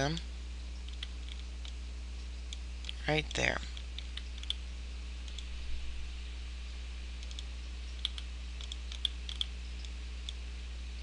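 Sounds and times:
steady low hum: 0.0 - 11.0
computer mouse clicks: 0.8 - 1.8, 3.7 - 4.6, 7.2 - 10.4.

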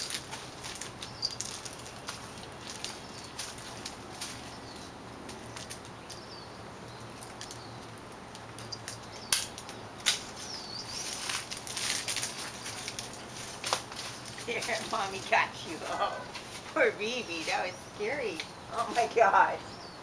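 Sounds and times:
branches and leaves rustling: 0.0 - 20.0
branch snaps: 8.3 - 10.5
bird chirps: 10.4 - 11.2.

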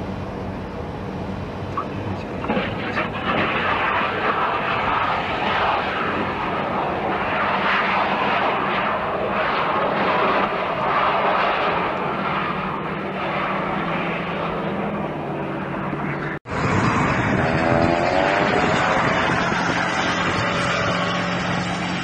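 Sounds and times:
turboprop aircraft engines: 0.0 - 22.0
road vehicle engine: 11.6 - 22.0.

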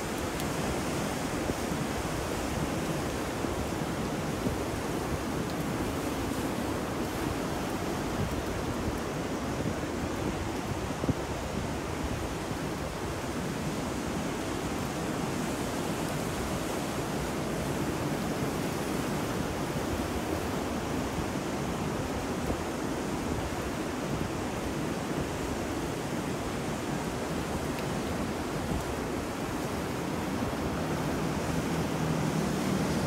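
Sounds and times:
ocean surf: 0.0 - 33.0
rain: 0.0 - 33.0
wind: 0.0 - 33.0.

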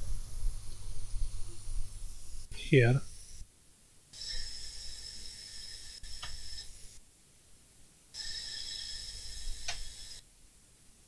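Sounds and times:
hot air blower hiss and whine: 0.0 - 3.4, 4.2 - 7.0, 8.2 - 10.2
sharp click: 9.6 - 9.9.

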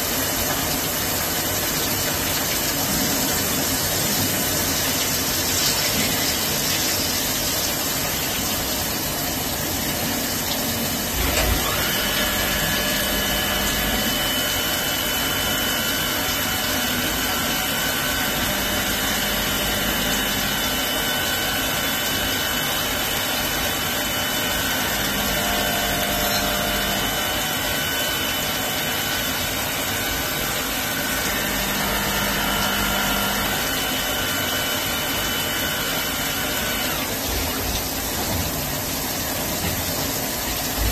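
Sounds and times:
high machine whine: 11.1 - 37.6
lathe machine noise: 11.1 - 37.6.

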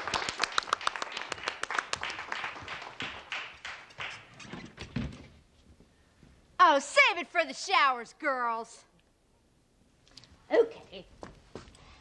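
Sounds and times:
small group clapping: 0.0 - 4.4.

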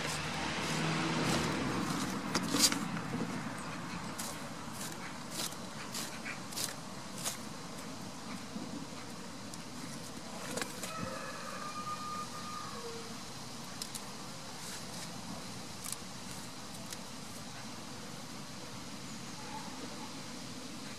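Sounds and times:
engine drone: 0.0 - 9.9.

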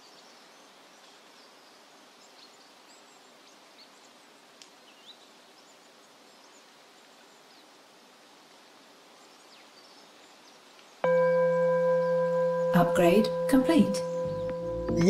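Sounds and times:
steady background hiss: 0.0 - 15.0
high bird chirps: 11.0 - 15.0.

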